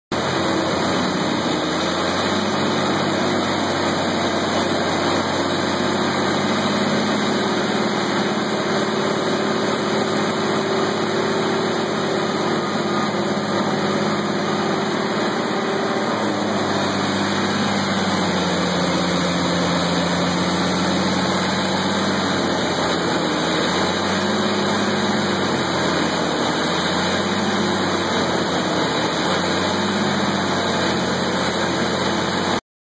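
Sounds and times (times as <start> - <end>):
wood chipper diesel engine: 0.1 - 32.6.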